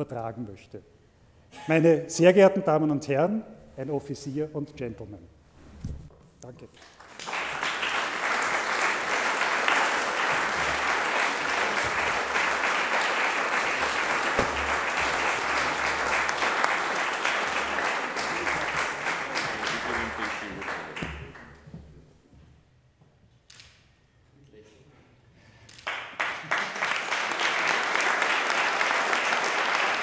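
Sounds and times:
audience applauding: 6.9 - 21.6, 25.8 - 30.0.

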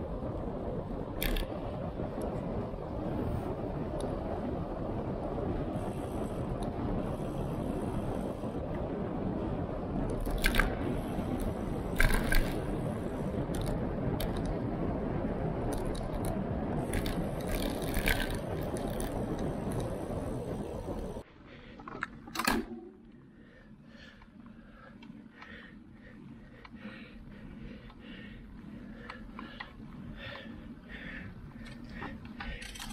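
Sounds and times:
wind on microphone: 0.0 - 21.2
bicycle tyres on asphalt: 0.0 - 32.9.

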